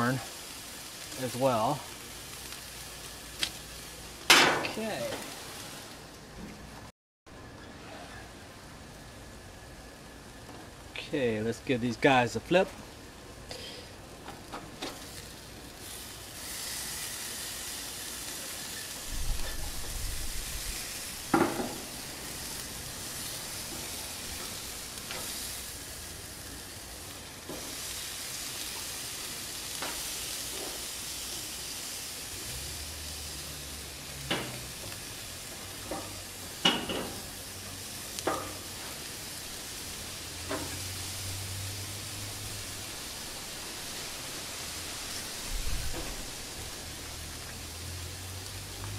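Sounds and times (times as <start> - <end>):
fish sizzling on a grill: 0.0 - 6.2, 7.8 - 48.9
spatula knocking on grill grates: 21.3 - 21.9.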